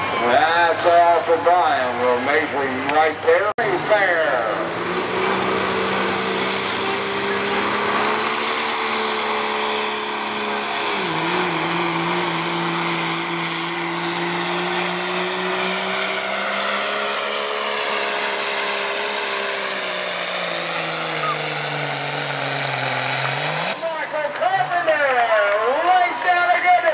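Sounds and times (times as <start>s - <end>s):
diesel engine at full throttle: 0.0s - 26.9s
turbo whistle: 20.9s - 21.5s.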